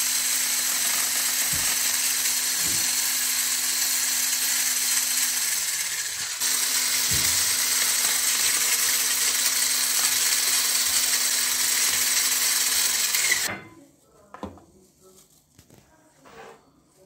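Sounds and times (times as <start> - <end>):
electric mixer beating batter: 0.0 - 13.5.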